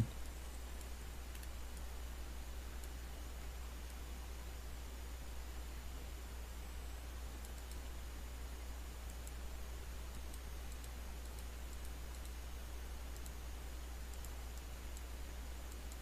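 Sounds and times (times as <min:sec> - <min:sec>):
electrical hum and hiss: 0:00.0 - 0:16.0
mouse and keyboard clicks: 0:00.7 - 0:01.9, 0:07.4 - 0:07.9, 0:09.0 - 0:09.4, 0:10.1 - 0:12.4, 0:13.1 - 0:13.4, 0:14.1 - 0:16.0.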